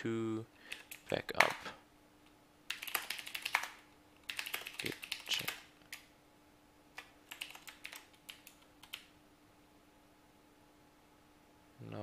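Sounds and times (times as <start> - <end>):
typing on computer keyboard: 0.7 - 1.6, 2.7 - 6.1, 7.0 - 9.1.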